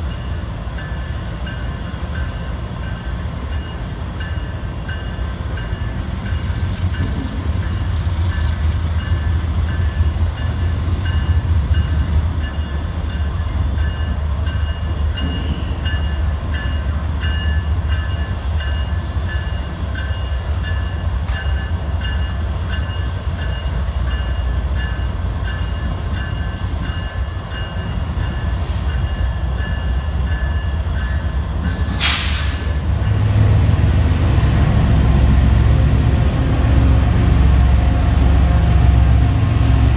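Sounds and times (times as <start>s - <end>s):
diesel locomotives rumbling: 0.0s - 39.9s
sharp air hiss: 31.7s - 32.8s.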